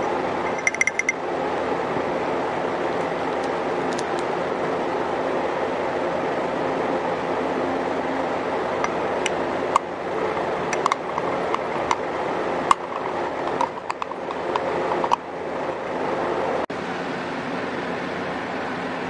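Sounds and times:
microwave oven humming: 0.0 - 19.0
utensil clinking against glass: 0.5 - 1.2.

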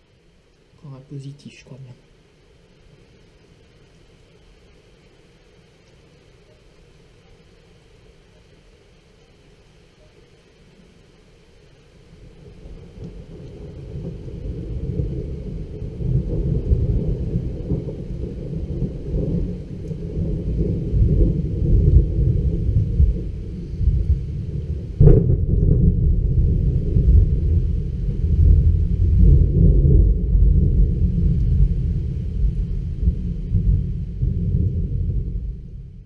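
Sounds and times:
low rolling thunder rumble: 11.4 - 36.0
sharp thunder clap: 13.9 - 36.0.

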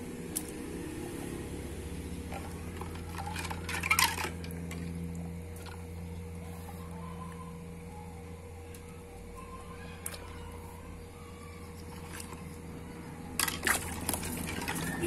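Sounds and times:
steady low hum: 0.0 - 15.0
water splashing in a bucket: 13.4 - 15.0.

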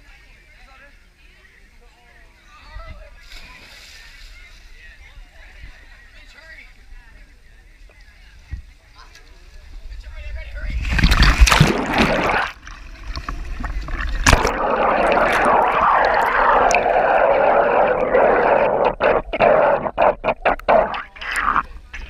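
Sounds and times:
pool water splashing and gurgling: 10.8 - 22.0.

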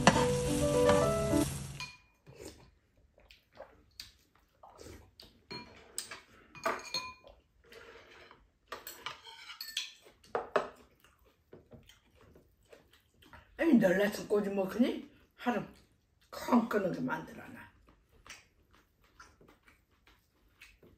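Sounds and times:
spoons clinking against bowls: 1.8 - 2.2, 5.5 - 7.3, 8.7 - 10.1.

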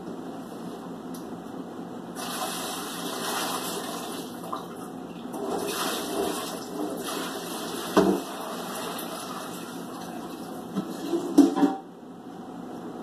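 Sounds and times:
water splashing into sink: 2.2 - 4.8, 5.4 - 10.6.

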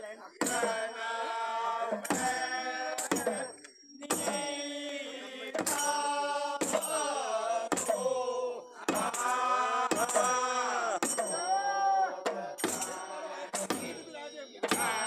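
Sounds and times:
group of men singing: 0.0 - 15.0
hand-beaten drum: 14.6 - 15.0.

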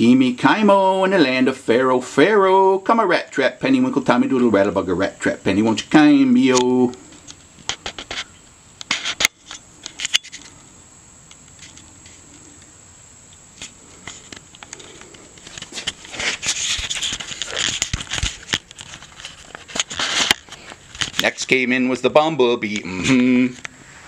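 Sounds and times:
crackling rustle of handling: 5.7 - 24.0.

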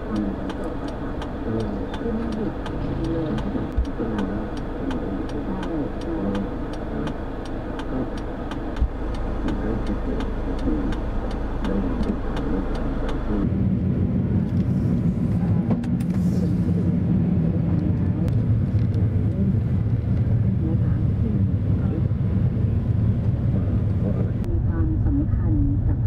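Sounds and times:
car pulling away: 0.0 - 13.5
car engine idling: 0.0 - 26.0.

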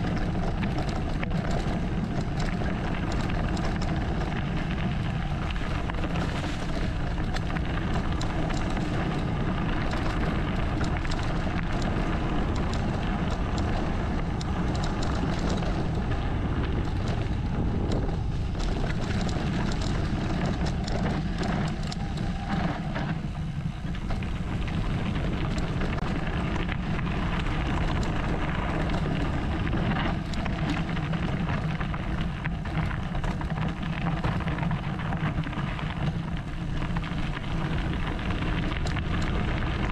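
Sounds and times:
bike clattering over stones: 0.0 - 39.9
tyre rumble: 0.0 - 39.9
wind noise on microphone: 0.0 - 39.9.

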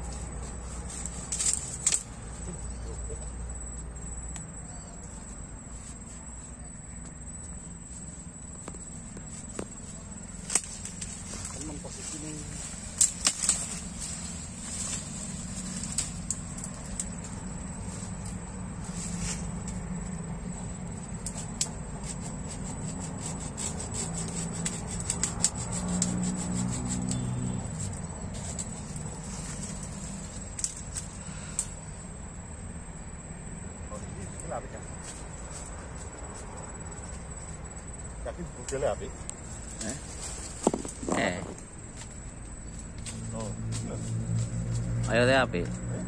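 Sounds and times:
rustling through dry stems: 0.0 - 3.8, 5.0 - 6.7, 7.5 - 32.1, 34.0 - 46.0
insect trill: 0.0 - 46.0
twig snaps: 1.3 - 2.1, 10.4 - 11.6, 12.9 - 14.2, 15.6 - 17.3, 30.4 - 31.8.

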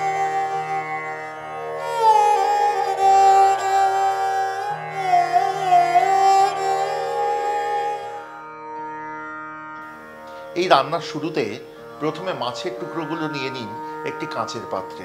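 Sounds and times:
steady drone: 0.0 - 8.4
gliding string melody: 0.0 - 15.0.

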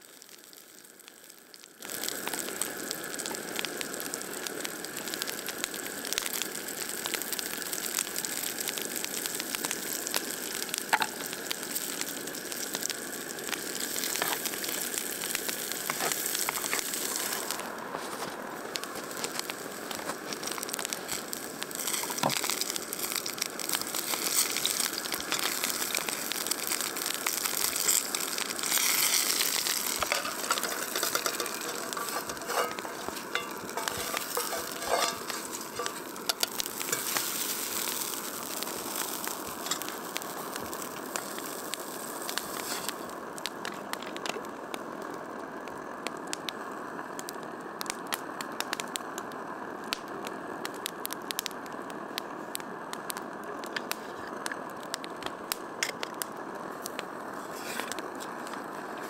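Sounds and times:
food sizzling in oil: 0.0 - 46.8
utensil clicking and scraping: 27.6 - 37.3.

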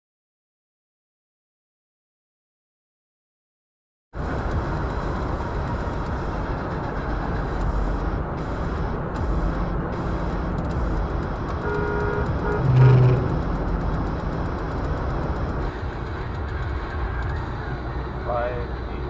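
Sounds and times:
car horn: 11.6 - 13.4.

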